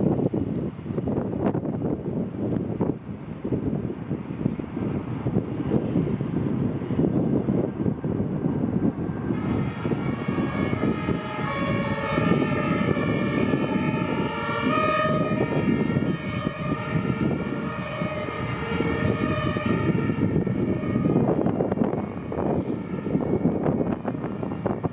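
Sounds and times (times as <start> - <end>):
low rumble of wind and traffic: 0.0 - 24.9
two-tone fire engine sirens: 4.4 - 24.9.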